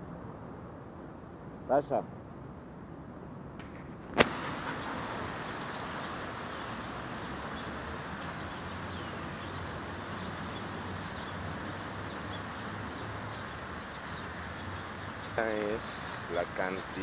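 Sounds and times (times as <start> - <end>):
low traffic hum: 0.0 - 17.0
sharp click: 3.6 - 4.4
water running over ground: 4.2 - 17.0.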